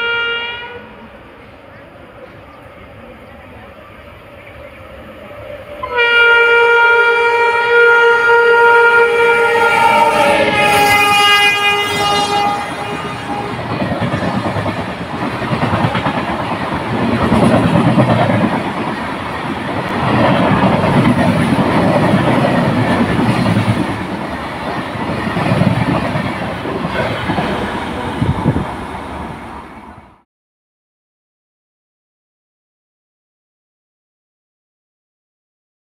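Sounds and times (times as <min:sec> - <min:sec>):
train horn: 0:00.0 - 0:01.1, 0:05.6 - 0:13.9
train wheels rumbling on rails: 0:09.0 - 0:30.2.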